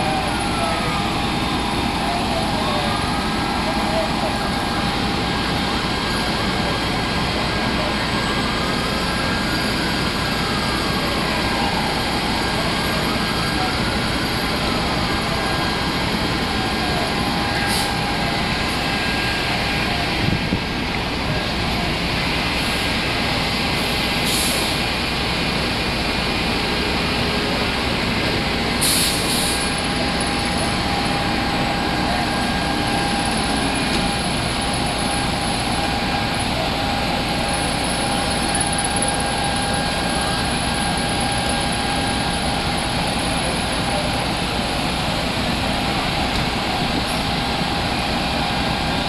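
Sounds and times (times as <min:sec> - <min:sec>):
diesel engines idling: 0:00.0 - 0:49.0
air brakes hissing: 0:17.5 - 0:18.9, 0:23.8 - 0:24.9, 0:28.8 - 0:31.2.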